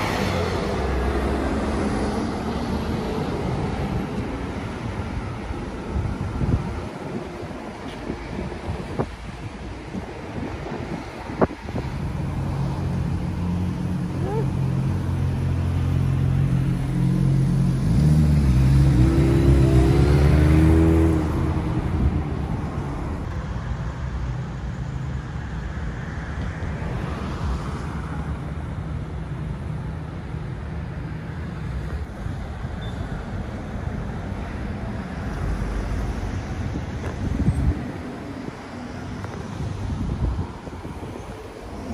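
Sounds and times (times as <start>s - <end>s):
street traffic: 0.0s - 41.9s
vehicle engine accelerating: 12.6s - 23.2s.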